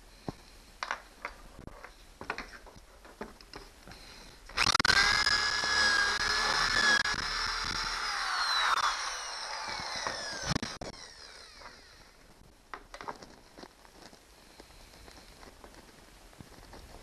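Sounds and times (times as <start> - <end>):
cordless drill motor whine: 4.6 - 12.3.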